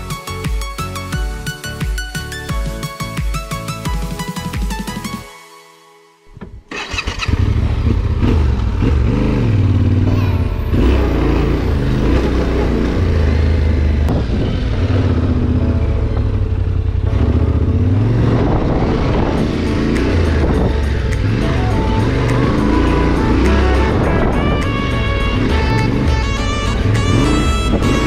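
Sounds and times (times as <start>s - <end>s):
motorcycle engine revving: 6.7s - 28.0s.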